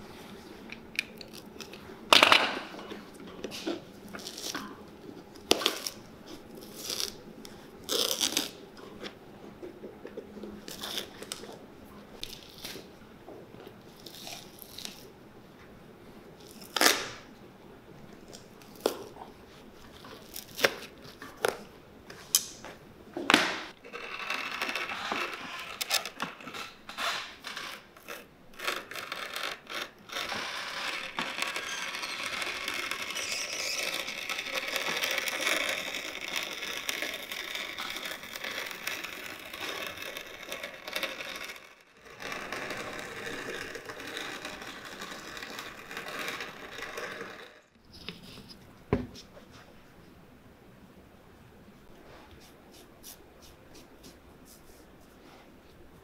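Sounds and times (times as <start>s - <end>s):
rotary cutting machine rasping: 28.9s - 47.6s.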